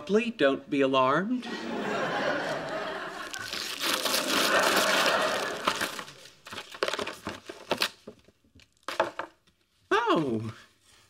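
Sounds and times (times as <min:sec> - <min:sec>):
wrapping paper tearing and crumpling: 0:03.1 - 0:09.0.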